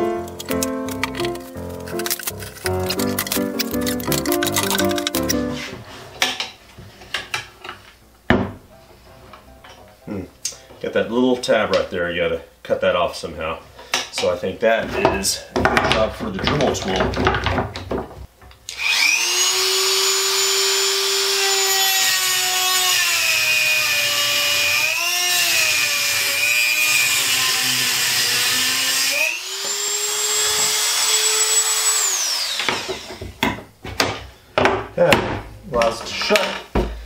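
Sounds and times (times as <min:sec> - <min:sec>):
clamps clattering: 0:00.2 - 0:05.7
rotary tool whining: 0:28.4 - 0:33.2.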